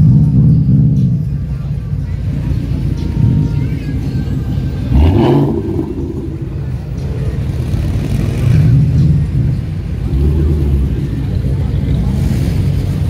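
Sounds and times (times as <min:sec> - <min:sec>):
sports car engines rolling past: 0:00.0 - 0:13.0
engine revving: 0:04.4 - 0:13.0.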